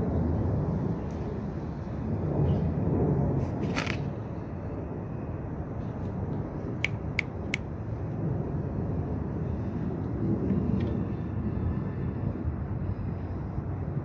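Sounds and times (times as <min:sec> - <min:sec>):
low outdoor background rumble: 0:00.0 - 0:14.0
sharp high clicks: 0:06.8 - 0:07.7.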